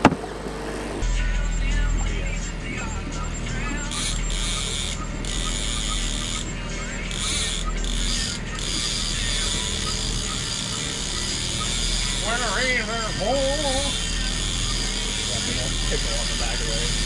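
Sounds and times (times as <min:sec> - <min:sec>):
outboard motor running: 0:00.0 - 0:01.1, 0:02.0 - 0:17.0
fishing gear ratcheting: 0:03.9 - 0:06.5, 0:07.1 - 0:17.0.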